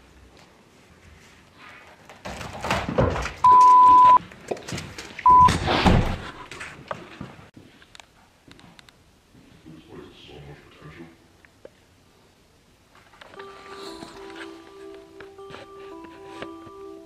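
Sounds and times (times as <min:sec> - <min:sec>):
censor bleeps: 0:03.4 - 0:04.2, 0:05.3 - 0:05.5.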